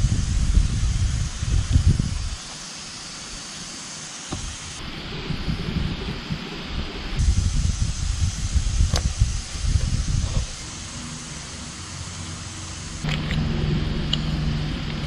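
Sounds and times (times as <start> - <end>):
wind buffeting microphone: 0.0 - 2.4, 4.3 - 10.9
breeze hissing: 0.0 - 15.0.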